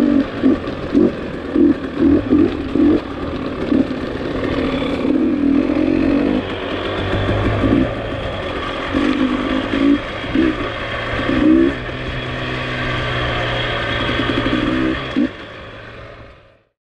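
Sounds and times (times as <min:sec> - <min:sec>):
dirt bike engine revving: 0:00.0 - 0:16.6.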